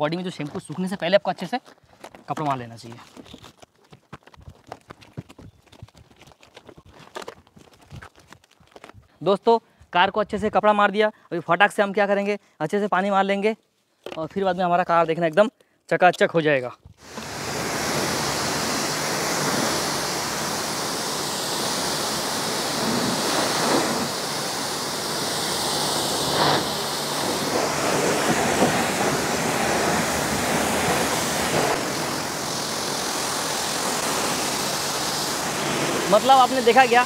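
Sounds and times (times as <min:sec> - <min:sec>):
pressure washer spraying car: 0:17.0 - 0:37.0.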